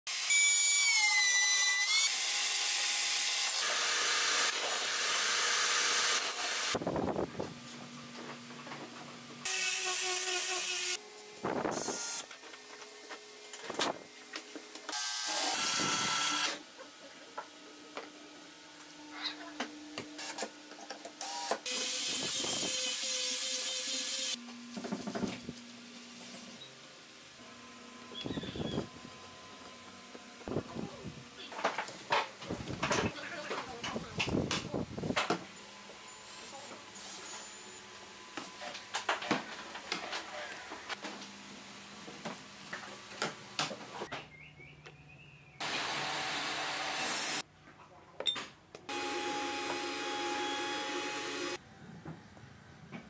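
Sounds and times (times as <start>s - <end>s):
loud sawing: 0.1s - 6.8s, 45.6s - 47.4s, 48.9s - 51.6s
cordless drill driving a screw: 14.9s - 16.6s
router bit whining: 14.9s - 16.6s, 48.9s - 51.6s
angle grinder sanding wood: 48.9s - 51.6s.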